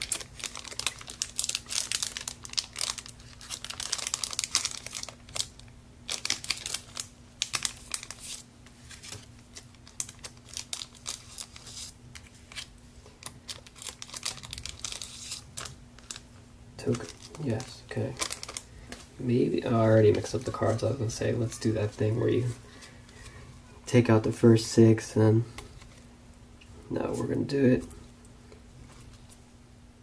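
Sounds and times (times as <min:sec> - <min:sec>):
foil wrapper crinkling: 0:00.0 - 0:22.1.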